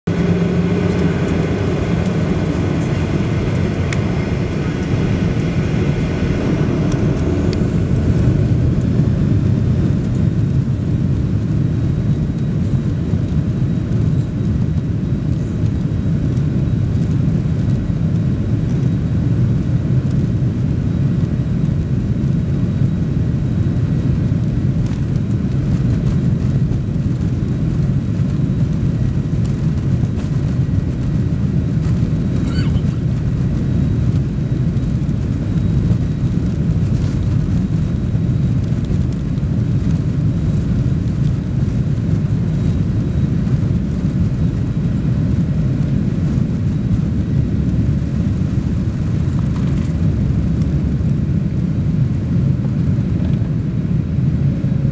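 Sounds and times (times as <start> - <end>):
jet engines spooling up: 0.1 - 10.7, 31.8 - 34.3.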